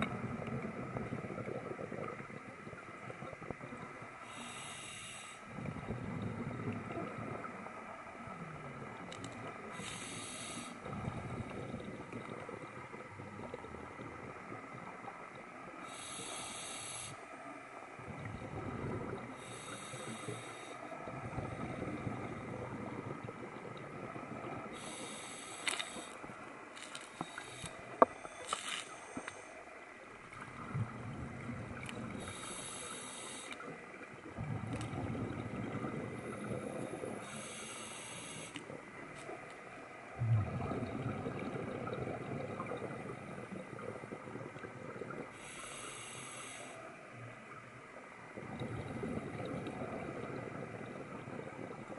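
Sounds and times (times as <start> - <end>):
exhaled air bubbling: 0.0 - 17.2, 17.8 - 51.9
scuba regulator inhale hiss: 4.2 - 5.5, 9.7 - 10.9, 15.8 - 17.2, 19.4 - 20.9, 24.7 - 26.3, 27.1 - 29.6, 32.2 - 33.7, 36.6 - 38.7, 45.3 - 46.9.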